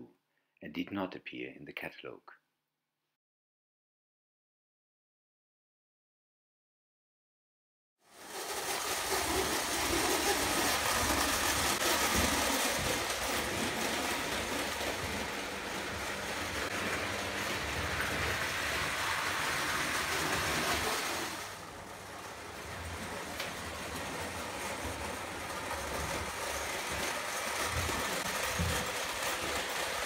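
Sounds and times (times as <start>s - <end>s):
toy train whirring rattle: 8.1s - 30.0s.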